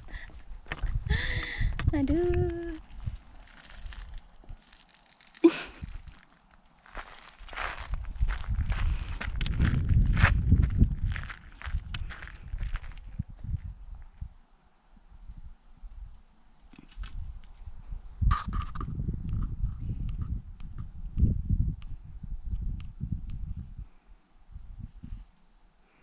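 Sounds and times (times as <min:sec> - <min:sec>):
wind buffeting microphone: 0:00.0 - 0:04.6, 0:07.6 - 0:14.4, 0:17.0 - 0:25.3
cricket chirping: 0:00.0 - 0:26.0.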